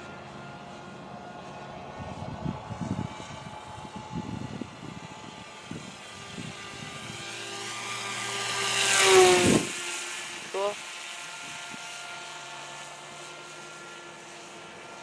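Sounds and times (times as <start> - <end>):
electric motor and propeller whining: 0.0 - 15.0
wind buffeting: 1.8 - 7.4, 9.0 - 9.9.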